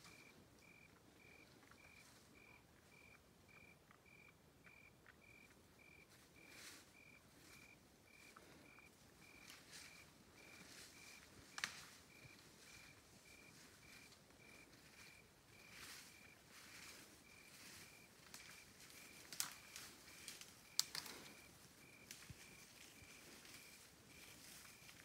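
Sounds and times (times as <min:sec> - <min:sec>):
cricket chirping: 0:00.0 - 0:25.0
rustling in brush: 0:06.1 - 0:08.6, 0:09.4 - 0:25.0.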